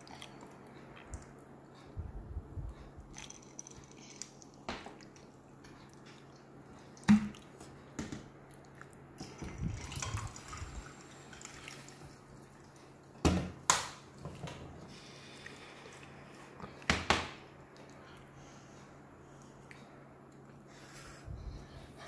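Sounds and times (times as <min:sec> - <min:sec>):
water pouring into mug: 0:09.4 - 0:12.0.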